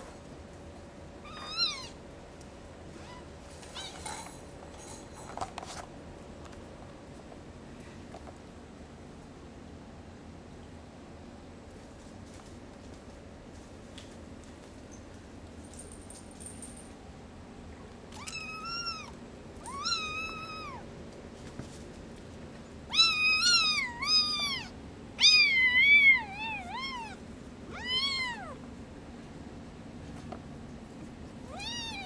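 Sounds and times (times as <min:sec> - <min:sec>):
kitten meowing: 0:01.2 - 0:02.0, 0:18.2 - 0:20.8, 0:22.9 - 0:28.6, 0:31.5 - 0:32.0.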